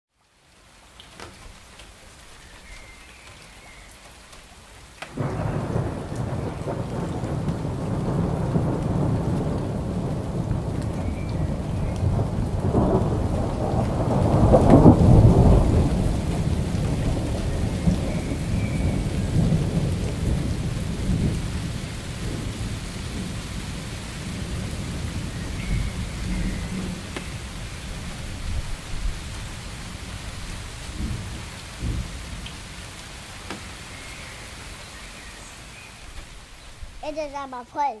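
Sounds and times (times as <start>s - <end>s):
steady rain: 0.1s - 38.0s
thunder rumbling: 5.1s - 32.5s.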